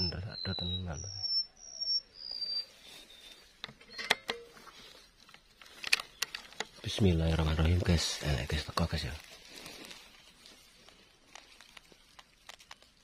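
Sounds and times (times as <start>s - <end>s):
whistled bird notes: 0.0s - 4.2s.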